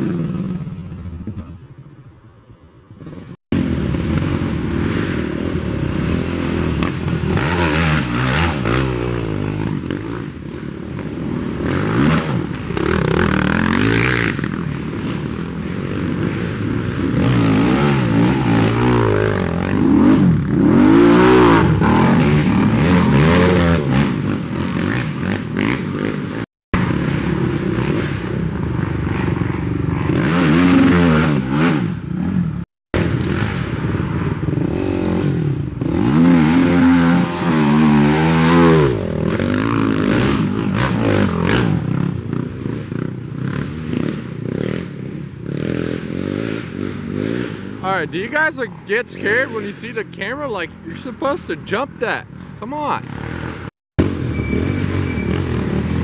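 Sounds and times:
atv engines revving: 0:00.0 - 0:56.0.

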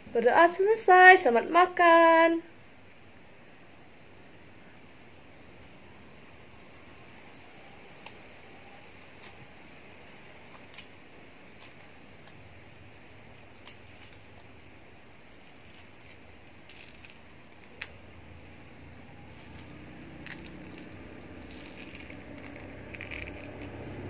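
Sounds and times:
orange rind peeling snaps: 0:08.0 - 0:08.3, 0:08.9 - 0:09.7, 0:10.4 - 0:12.4, 0:13.5 - 0:14.6, 0:15.2 - 0:18.1, 0:19.3 - 0:24.0.

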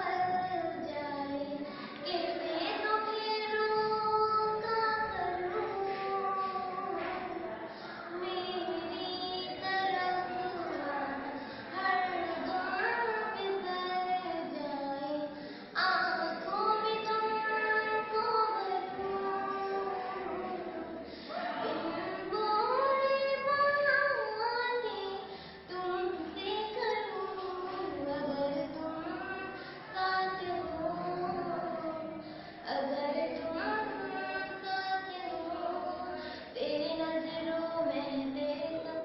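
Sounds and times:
girl singing unaccompanied: 0:00.0 - 0:39.0.

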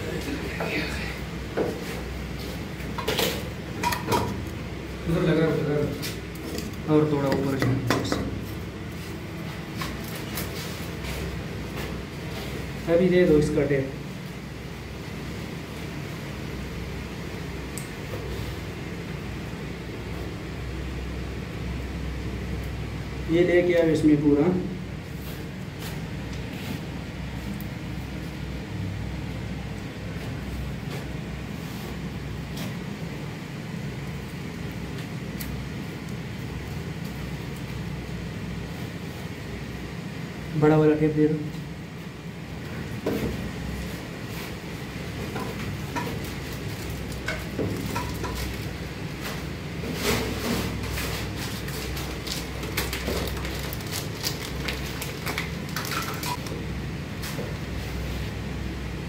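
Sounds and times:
low mechanical rumble: 0:00.0 - 0:59.0
steady low hum: 0:00.0 - 0:59.0
paper rustling: 0:49.9 - 0:56.5
foil packet crinkling: 0:51.2 - 0:56.5.

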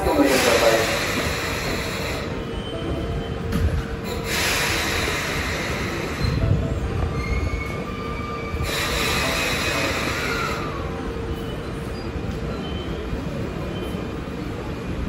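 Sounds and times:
electric train slowing to a stop: 0:00.0 - 0:15.0
wheels and brakes squealing: 0:01.6 - 0:03.4, 0:07.0 - 0:14.1.

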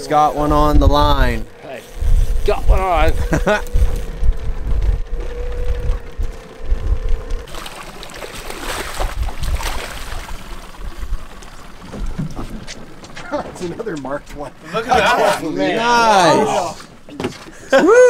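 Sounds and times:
wind rumbling on microphone: 0:00.0 - 0:13.0
steady hum: 0:00.0 - 0:17.1
fish thrashing water splashing: 0:07.5 - 0:11.2.

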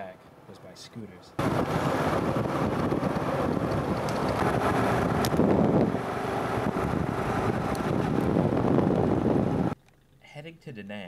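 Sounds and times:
road noise: 0:01.4 - 0:09.8
scooter engine: 0:01.4 - 0:09.8
wind buffeting microphone: 0:01.4 - 0:09.8.

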